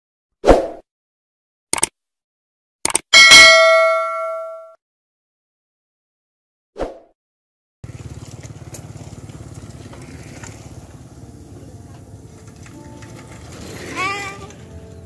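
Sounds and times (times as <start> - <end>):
motorcycle engine running: 7.8 - 15.0.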